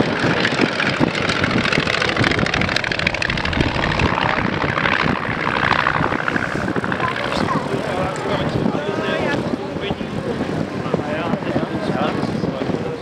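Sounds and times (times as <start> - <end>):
propeller plane engine flying past: 0.0 - 10.0.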